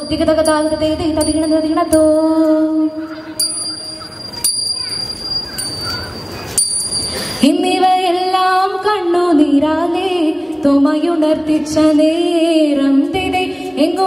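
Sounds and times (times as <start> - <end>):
small hand cymbals ringing: 0.0 - 8.1.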